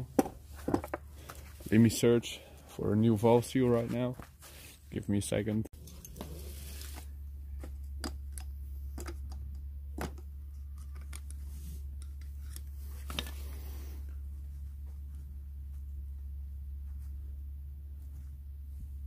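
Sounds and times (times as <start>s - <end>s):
low hum: 5.7s - 19.0s.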